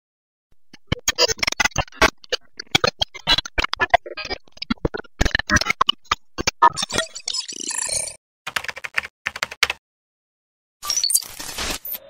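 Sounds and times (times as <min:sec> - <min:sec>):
sharp glitchy clicks and ticks: 0:00.5 - 0:08.2.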